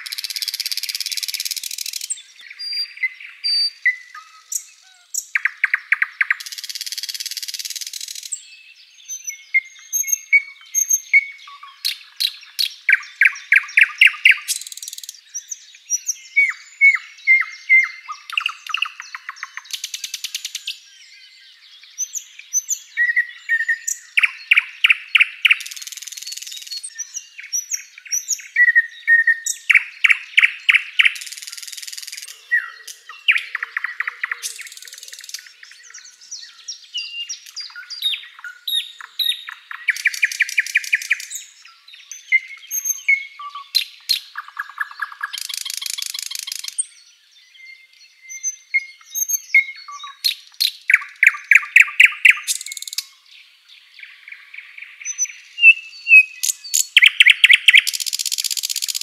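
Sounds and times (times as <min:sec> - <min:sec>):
bird singing loudly: 0:00.0 - 0:59.0.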